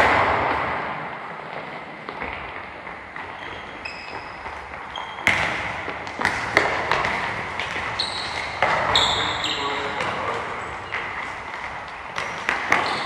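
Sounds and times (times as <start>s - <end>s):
ball kicks and bounces: 3.2s - 9.0s
high squeaks: 3.4s - 5.3s, 8.0s - 10.0s.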